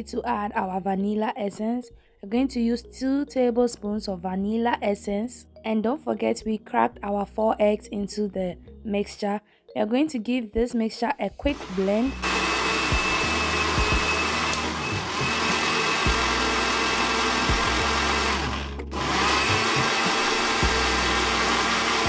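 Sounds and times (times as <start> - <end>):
blender motor whirring: 11.5 - 22.0.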